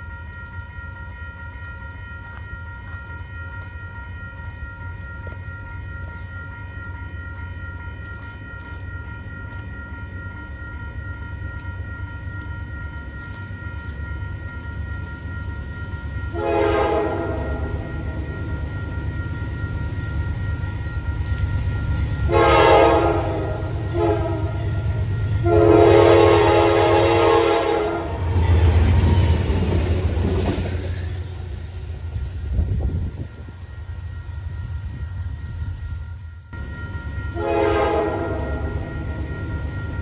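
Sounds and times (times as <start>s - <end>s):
crossing signal bells ringing: 0.0s - 40.0s
diesel locomotive engine passing: 0.0s - 40.0s
locomotive air horn blasts: 16.3s - 17.9s, 22.3s - 24.8s, 25.4s - 28.6s, 37.3s - 38.9s
distant train horn blast: 16.3s - 18.1s, 22.3s - 29.1s, 37.2s - 39.0s.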